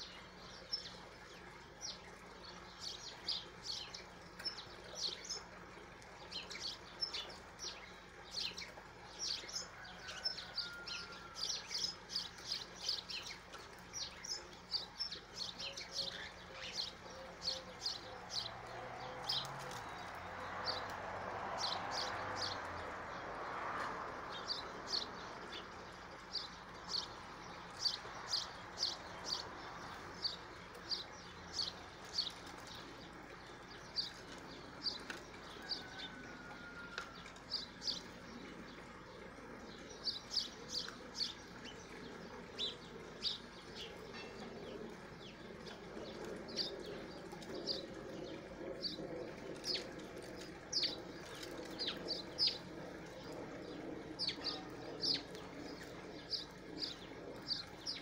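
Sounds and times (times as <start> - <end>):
small songbirds chirping: 0.0 - 58.0.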